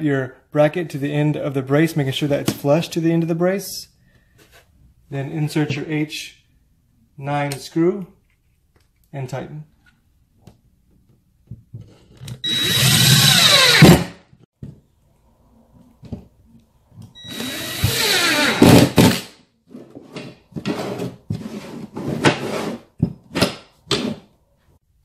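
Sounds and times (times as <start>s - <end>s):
impact driver driving screws: 12.4s - 14.2s.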